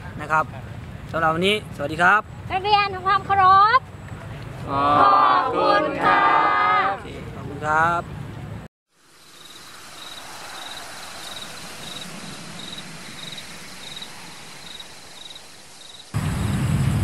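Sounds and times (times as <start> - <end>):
cricket chirping: 8.9 - 16.2
steady evening hiss: 8.9 - 16.4.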